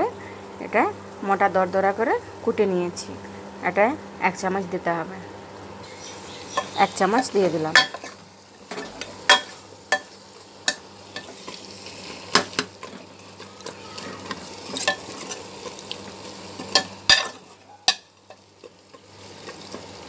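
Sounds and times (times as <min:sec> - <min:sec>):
meat sizzling: 0:05.4 - 0:20.0.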